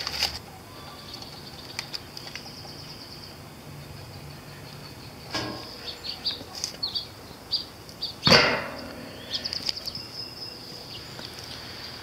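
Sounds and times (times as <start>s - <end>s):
small birds chirping: 0.5s - 12.0s
metal smoker clank: 5.3s - 5.9s, 8.2s - 9.5s.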